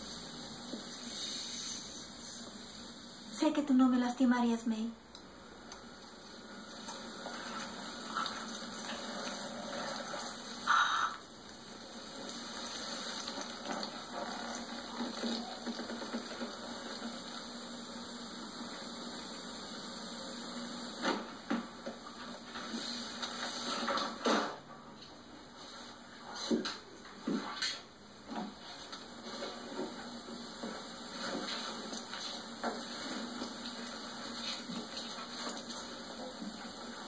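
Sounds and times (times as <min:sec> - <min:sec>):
liquid gushing and gurgling: 0:06.1 - 0:21.2.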